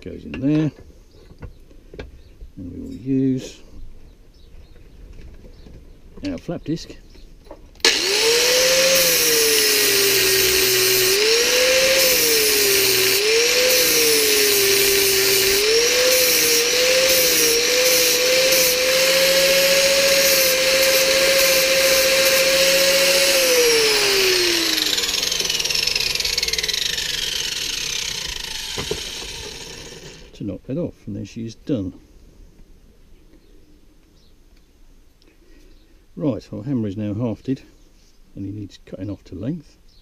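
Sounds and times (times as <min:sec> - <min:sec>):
angle grinder running: 0:07.8 - 0:30.3
grinder winding down whine: 0:07.8 - 0:30.3.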